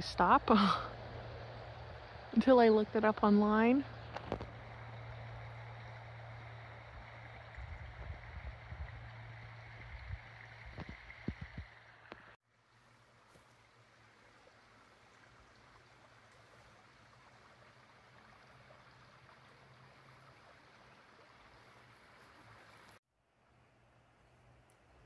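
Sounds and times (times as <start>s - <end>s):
low hum: 0.0s - 12.4s.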